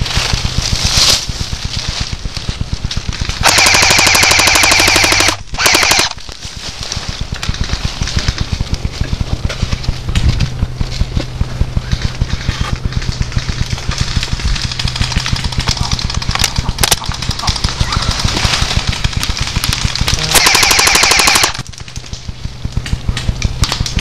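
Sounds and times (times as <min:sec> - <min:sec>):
quiet continuous crackling: 0:00.0 - 0:24.0
airsoft rifle full-auto bursts: 0:03.3 - 0:06.2, 0:19.6 - 0:21.7.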